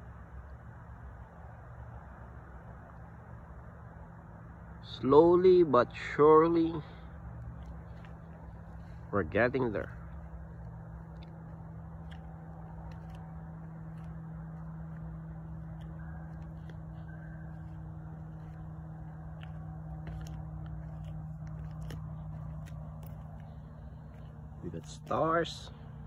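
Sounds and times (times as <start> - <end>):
steady low hum: 0.0 - 26.0
faint clicks and rustles: 6.8 - 26.0.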